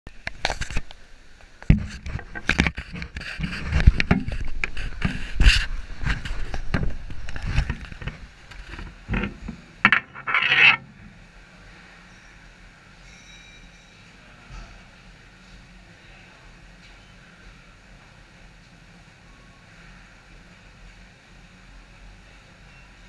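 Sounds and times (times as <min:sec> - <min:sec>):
scraping rustle: 0:01.7 - 0:11.2.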